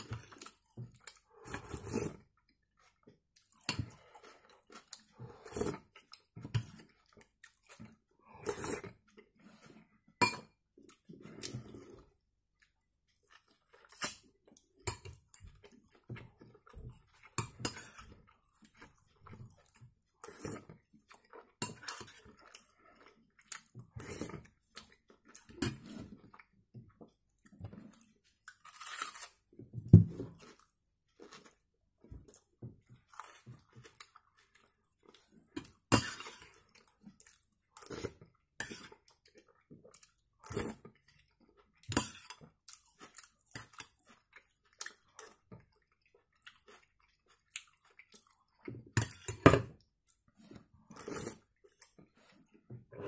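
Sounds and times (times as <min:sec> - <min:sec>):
close-up chewing: 0:30.2 - 0:49.2.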